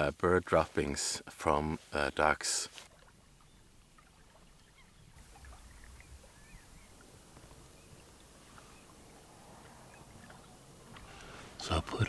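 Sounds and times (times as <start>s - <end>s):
faint low rumble: 3.0s - 12.0s
bird chirps: 3.4s - 10.7s.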